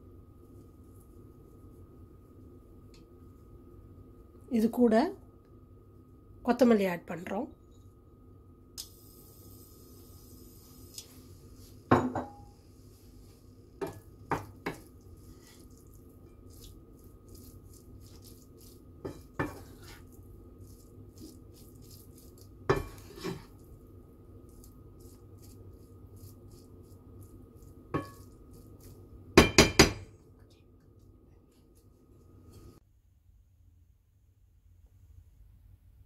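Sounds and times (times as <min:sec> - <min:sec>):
faint steady hum: 0:00.0 - 0:36.0
wooden spatula knocking on wok: 0:13.8 - 0:14.9, 0:29.4 - 0:30.1.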